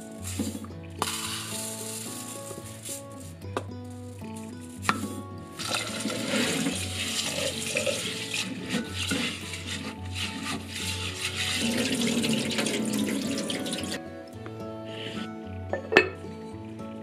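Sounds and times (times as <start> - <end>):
hand swirling rice grains: 0.0 - 14.0
tap water splashing into pot: 0.3 - 1.7, 4.9 - 9.3, 11.6 - 14.0
water poured into sink: 4.8 - 14.0.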